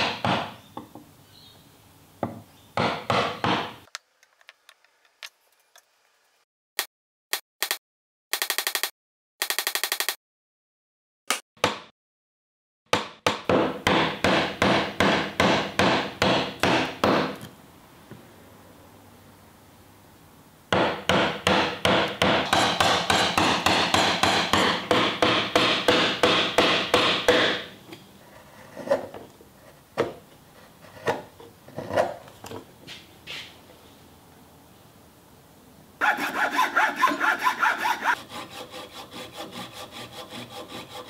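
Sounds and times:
chisel struck into wood: 0.0 - 0.9, 2.2 - 3.8, 12.9 - 17.4, 20.7 - 27.7.

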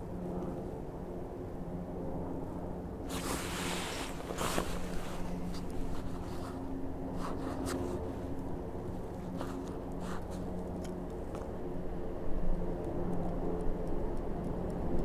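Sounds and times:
helicopter flying low: 0.0 - 15.0
jacket rustling: 3.1 - 8.4.

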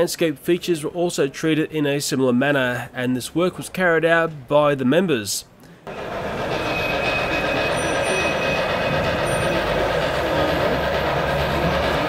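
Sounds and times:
model train rumbling on track: 5.9 - 12.0.

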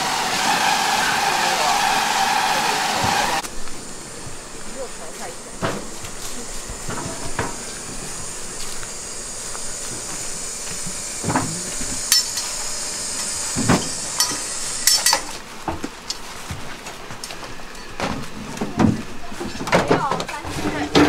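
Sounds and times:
high hiss: 0.0 - 15.5.

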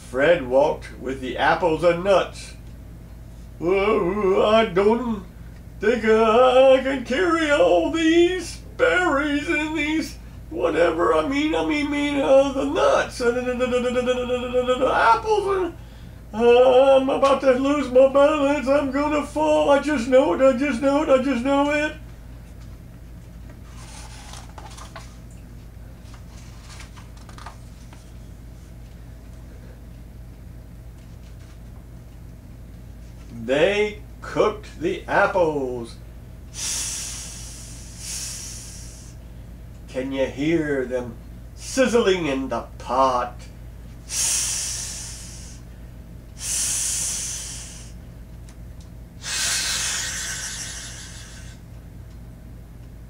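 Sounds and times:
low steady hum: 0.0 - 53.0
book pages turning: 23.7 - 25.2, 26.0 - 28.1
man imitating sizzling with mouth: 36.6 - 39.2, 49.2 - 51.6.

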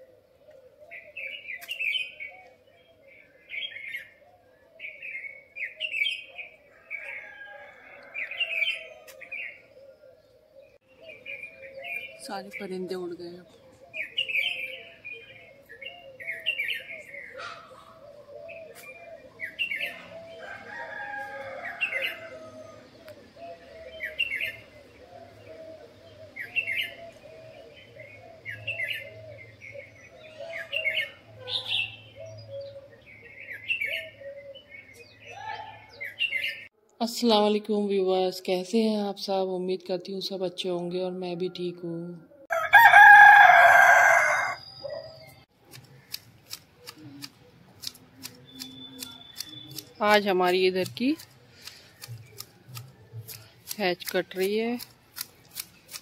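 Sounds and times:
background bird calls: 0.0 - 36.8, 40.2 - 56.0
rooster crowing: 6.7 - 8.8, 20.0 - 23.0, 42.5 - 45.0
hedge shears snipping: 45.6 - 56.0
short bird chirping call: 46.8 - 50.2.

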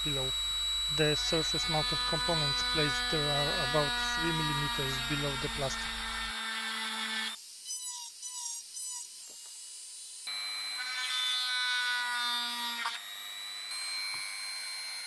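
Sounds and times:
rotary tool drilling plastic: 0.0 - 9.8.

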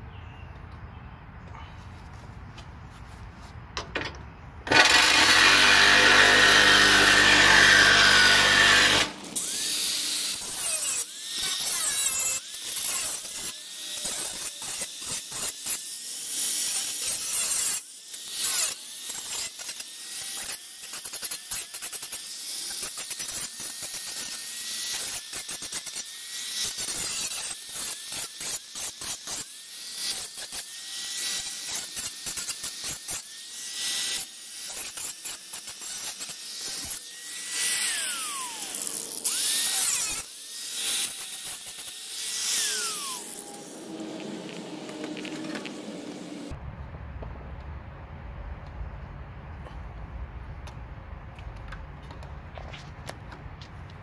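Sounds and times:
electric grinder grinding metal: 4.7 - 46.6.

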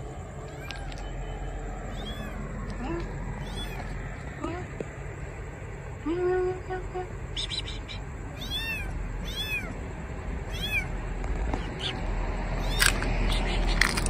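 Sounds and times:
kitten mewing: 1.9 - 4.7, 7.3 - 9.8, 10.4 - 11.0, 12.6 - 13.8.

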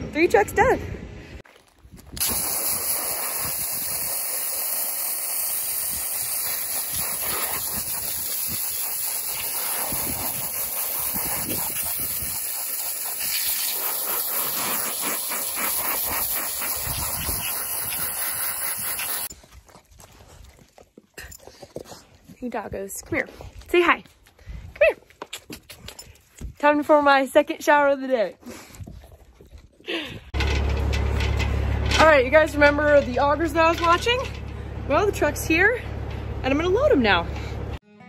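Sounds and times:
steady spraying hiss: 2.2 - 19.3.

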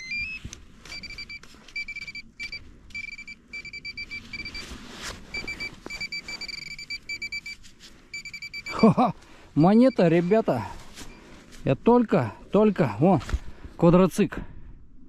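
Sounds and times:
metal detector beeping: 0.0 - 11.2.

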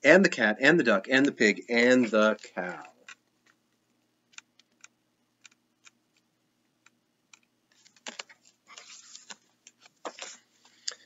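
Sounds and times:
paper pages rustling: 7.7 - 10.8.

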